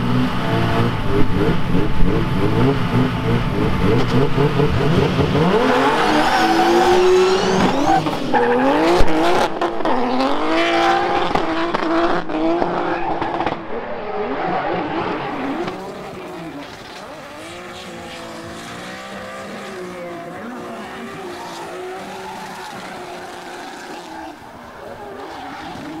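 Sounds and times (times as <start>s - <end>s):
car engine revving: 0.0s - 26.0s
tyre squeal: 14.4s - 26.0s.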